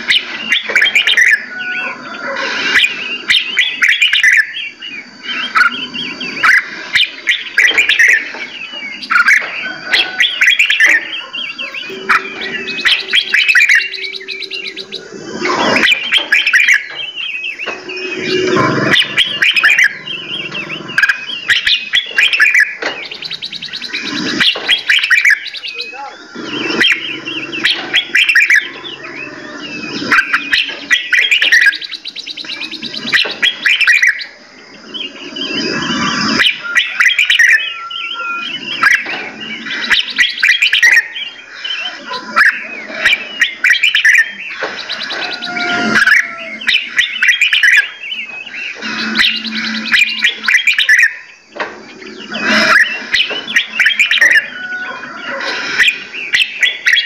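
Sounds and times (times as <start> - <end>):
caged songbirds singing: 0.0 - 57.0.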